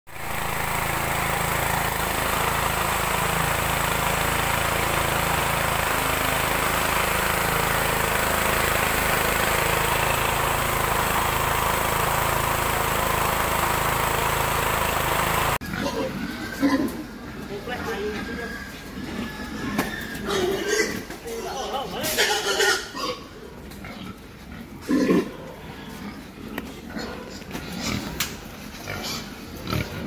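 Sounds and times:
engine running steadily: 0:00.1 - 0:15.6.

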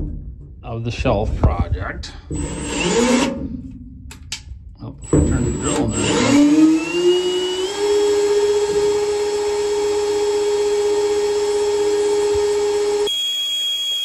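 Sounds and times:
drill motor whine: 0:02.3 - 0:03.4, 0:04.9 - 0:14.0
drill bit squealing in steel: 0:02.4 - 0:03.3, 0:13.0 - 0:14.0.

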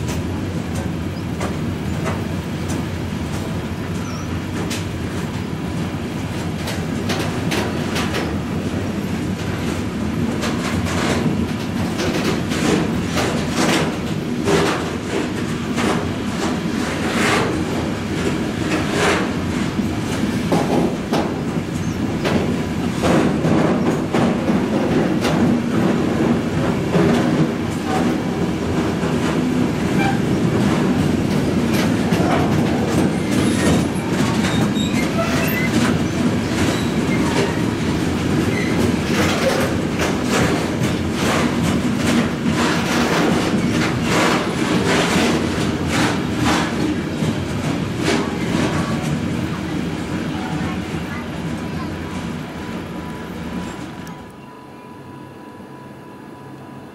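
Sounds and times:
wheels clattering over rail joints: 0:00.0 - 0:52.4
freight train rumbling: 0:00.0 - 0:56.9
wheel squeals: 0:04.0 - 0:04.4, 0:29.9 - 0:30.4, 0:33.0 - 0:37.7.

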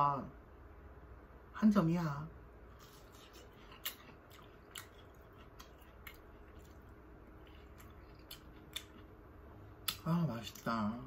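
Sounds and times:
faint chewing of food: 0:02.7 - 0:10.8.

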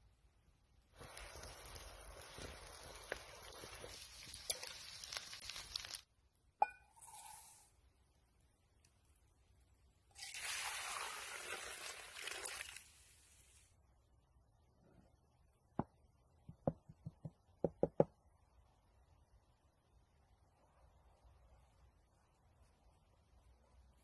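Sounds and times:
steady hiss: 0:00.9 - 0:06.1.

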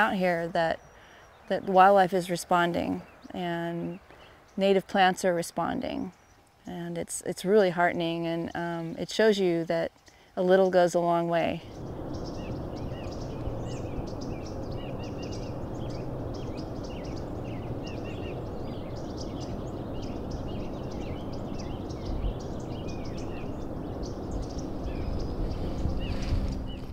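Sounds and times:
small birds chirping: 0:00.0 - 0:26.9
low background rumble: 0:10.7 - 0:26.9.

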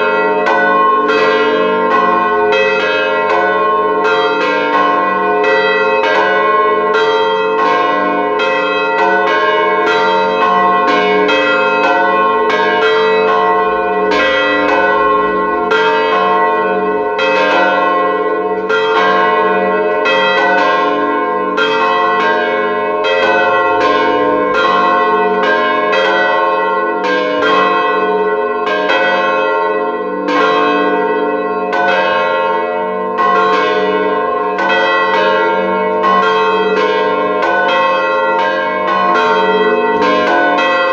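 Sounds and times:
church bells ringing: 0:00.0 - 0:40.9.

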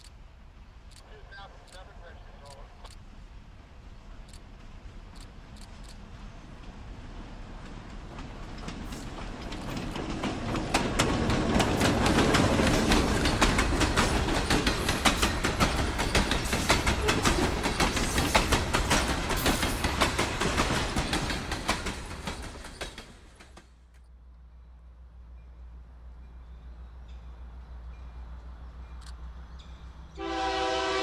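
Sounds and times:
freight train rumble: 0:00.0 - 0:31.0
train wheels clicking over rail joints: 0:04.0 - 0:24.1.

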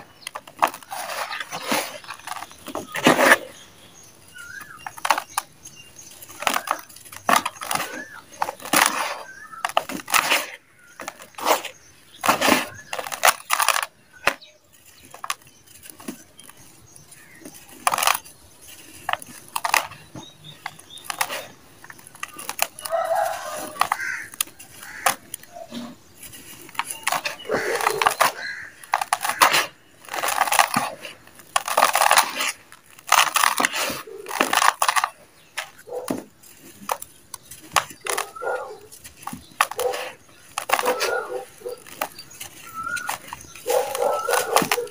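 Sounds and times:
dry dirt crunching between hands: 0:00.0 - 0:44.9.

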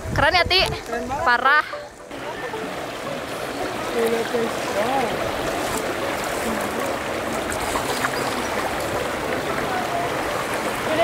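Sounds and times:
wind on microphone: 0:00.0 - 0:01.5
spring water rushing: 0:01.1 - 0:11.0.

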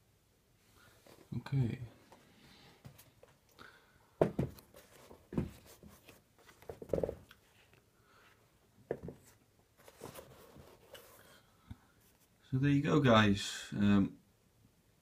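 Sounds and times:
soft knocks and rubs of shoe handling: 0:04.2 - 0:07.7, 0:08.8 - 0:11.4.

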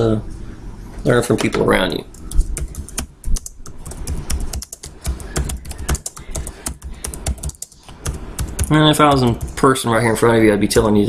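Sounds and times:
typing on computer keyboard: 0:02.1 - 0:09.7.

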